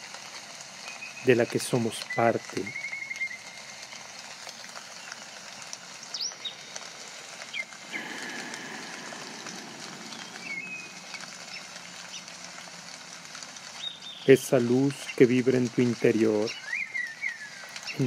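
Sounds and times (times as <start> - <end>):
running water and rain: 0.0 - 18.0
bird whistles: 2.1 - 3.5, 10.1 - 11.6, 16.6 - 17.7
deeper rush of water: 3.4 - 18.0
bird chirps: 7.5 - 12.3, 13.8 - 14.4, 16.5 - 18.0.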